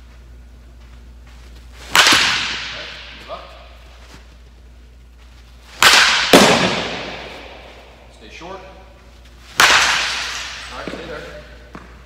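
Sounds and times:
bat cracking baseball: 1.8s - 3.5s, 5.7s - 8.1s, 9.4s - 12.0s
sharp impact: 5.7s - 7.8s.

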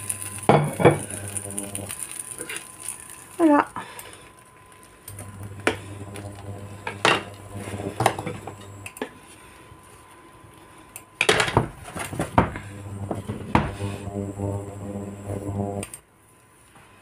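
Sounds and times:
low hum: 5.0s - 9.0s, 12.3s - 15.9s.

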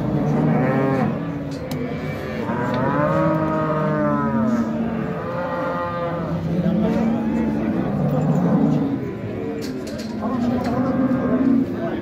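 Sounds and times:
cow mooing: 0.0s - 9.6s, 10.3s - 11.7s.

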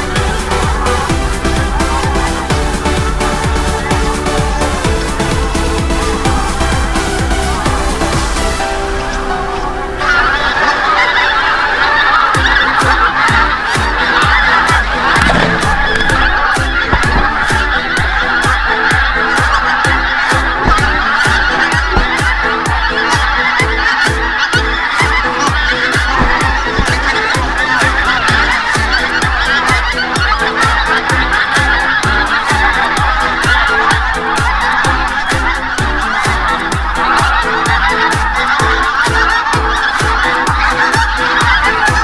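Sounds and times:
electronic beat: 0.0s - 8.6s, 11.9s - 42.0s
geese honking: 0.0s - 42.0s.

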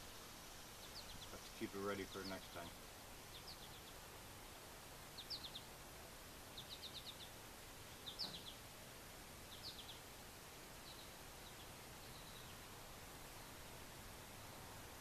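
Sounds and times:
faint bird chirping: 0.0s - 15.0s.

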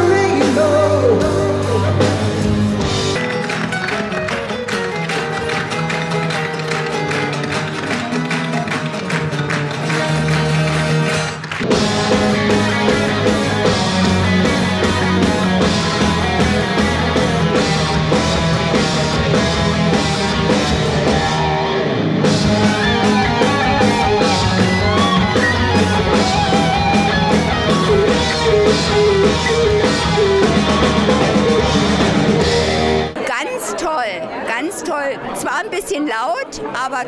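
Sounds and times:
rock band playing live: 0.0s - 33.2s
guitar: 0.0s - 33.6s
steady drum beat: 9.9s - 21.6s, 22.2s - 33.2s.

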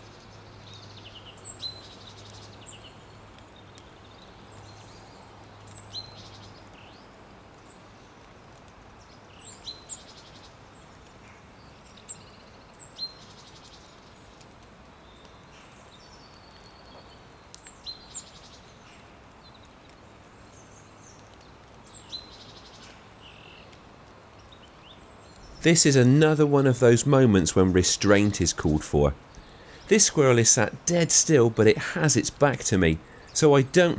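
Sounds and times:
songbird chirps and trill: 0.0s - 8.1s, 9.0s - 14.4s, 15.0s - 33.9s
faint outdoor hiss: 0.0s - 33.9s.

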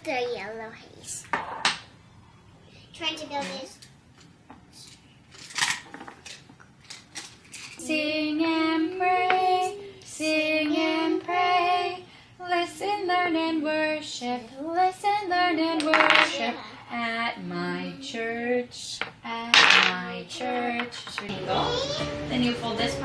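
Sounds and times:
wooden toy blocks knocking: 15.8s - 16.4s
person singing: 20.4s - 23.0s.

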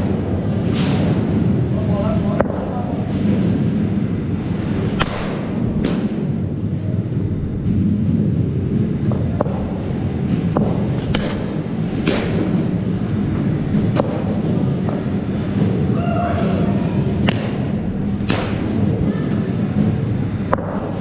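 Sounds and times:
low rumble: 0.0s - 21.0s
cricket ball knocking bat: 10.5s - 12.7s, 13.7s - 15.1s, 17.1s - 18.8s, 20.5s - 21.0s.

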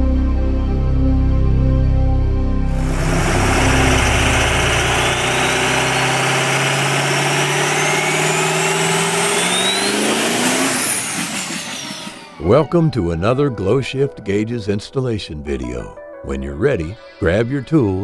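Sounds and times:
rushing noise: 2.7s - 12.4s
car engine accelerating: 2.7s - 12.6s.

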